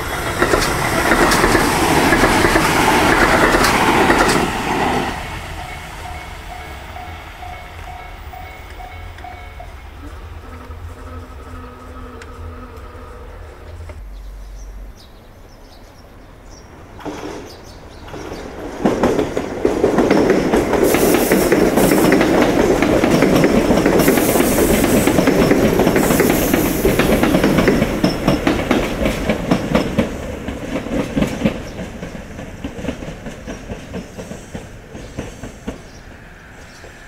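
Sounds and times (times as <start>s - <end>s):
train wheels clacking over rail joints: 0.0s - 9.6s, 17.0s - 36.0s
electric train passing: 0.0s - 37.0s.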